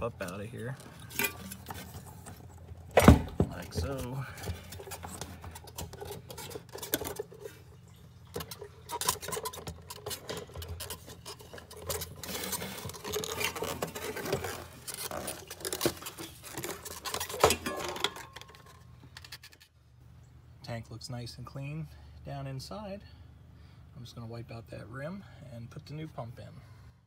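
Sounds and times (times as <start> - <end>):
plastic clicks rattles and scrapes: 3.8 - 7.6, 8.3 - 19.7.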